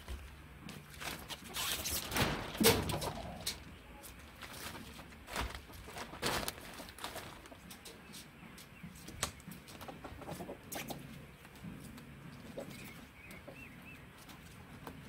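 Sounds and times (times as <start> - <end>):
chickens clucking: 2.6 - 15.0
plastic film rustling and knocking: 4.3 - 7.6.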